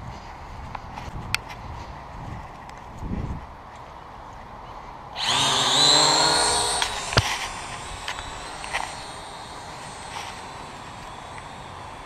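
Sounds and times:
drone propellers whining: 5.2 - 12.0.

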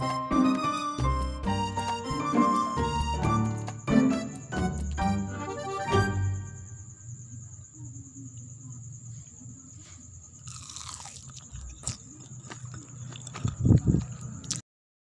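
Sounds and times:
fritter crust crunching: 10.4 - 14.6.

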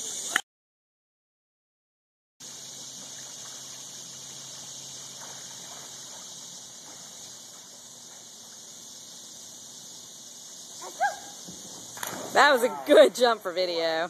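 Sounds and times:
swimmer splashing water: 2.4 - 9.4, 10.2 - 14.0
lake ambience hiss: 2.4 - 14.0.

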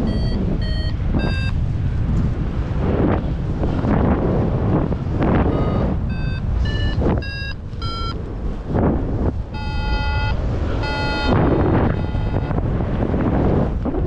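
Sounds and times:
electronic beeps: 0.0 - 1.6, 5.5 - 8.2, 9.6 - 12.6
wind on microphone: 0.0 - 14.0
long low tones: 5.0 - 13.2.

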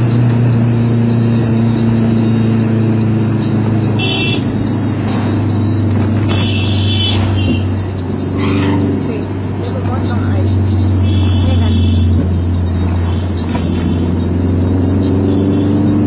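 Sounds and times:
traffic noise: 0.0 - 16.0
vehicle engine droning: 0.0 - 16.0.

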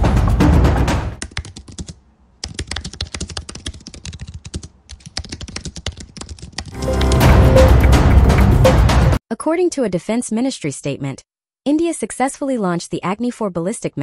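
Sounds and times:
fast typing on keyboard: 1.2 - 7.7
intro music: 6.8 - 9.2.

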